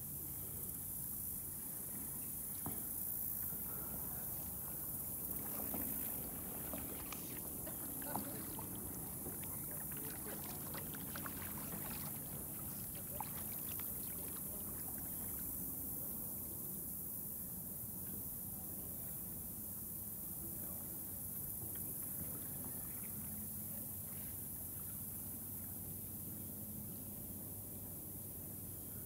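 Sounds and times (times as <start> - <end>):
paddle drips and splashes: 4.8 - 16.0.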